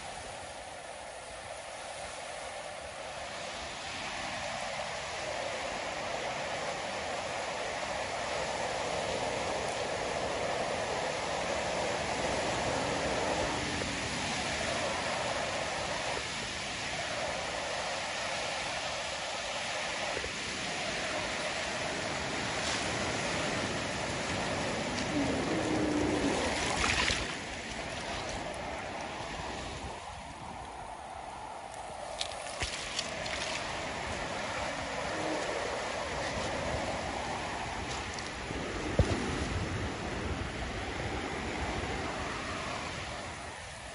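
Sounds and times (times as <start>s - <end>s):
surf breaking over rocks: 19.9s - 30.6s.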